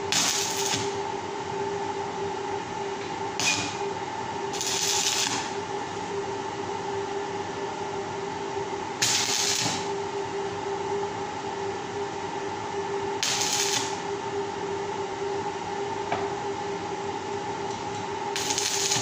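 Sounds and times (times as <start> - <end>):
steady hum: 0.0 - 19.0
arc welding bursts: 0.1 - 1.0, 4.5 - 5.5, 9.0 - 9.8, 13.2 - 14.0, 18.4 - 19.0.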